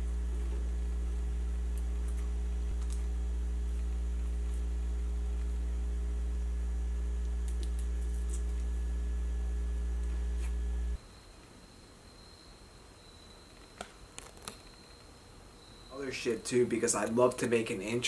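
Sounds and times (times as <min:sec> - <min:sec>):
electrical hum: 0:00.0 - 0:18.0
paper crinkles and clicks: 0:07.4 - 0:08.8, 0:13.6 - 0:15.1.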